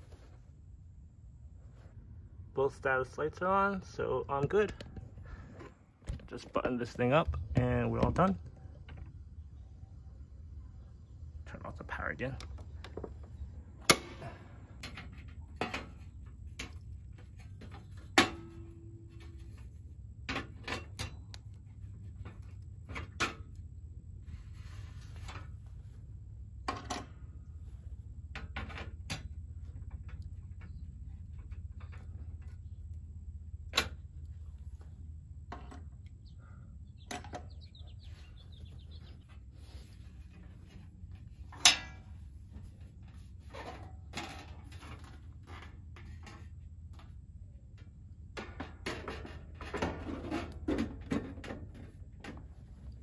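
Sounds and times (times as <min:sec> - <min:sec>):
clicks and metal knocks: 0:12.3 - 0:23.7, 0:26.6 - 0:27.4, 0:28.3 - 0:33.0, 0:35.4 - 0:36.2, 0:37.0 - 0:37.8, 0:40.1 - 0:53.0.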